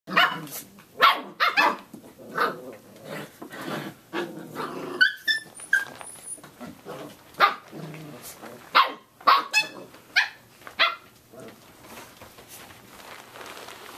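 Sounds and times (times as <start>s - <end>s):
puppies growling: 2.0s - 8.7s
high squeaks: 5.0s - 6.5s
puppies barking and yipping: 5.0s - 6.6s.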